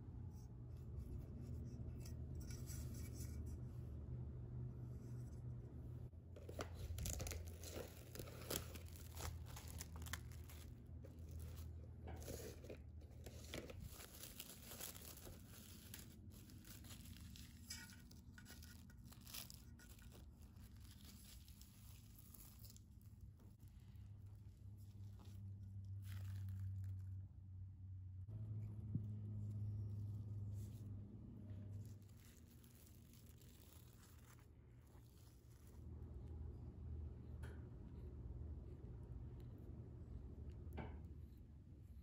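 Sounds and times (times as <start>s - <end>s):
bread tearing and rustling: 6.4s - 27.3s, 31.7s - 36.0s.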